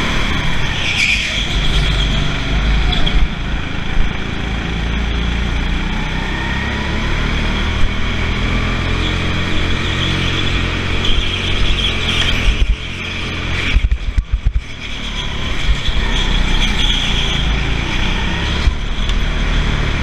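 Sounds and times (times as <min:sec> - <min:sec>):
go-kart engine rumble: 0:00.0 - 0:20.0
brief high squeal: 0:14.9 - 0:17.5.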